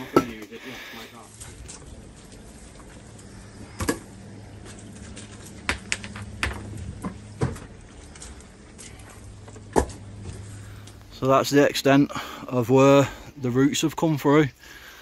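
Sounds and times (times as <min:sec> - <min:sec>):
steady low hum: 0:00.0 - 0:13.6
stones knocking and clunking: 0:04.9 - 0:10.2.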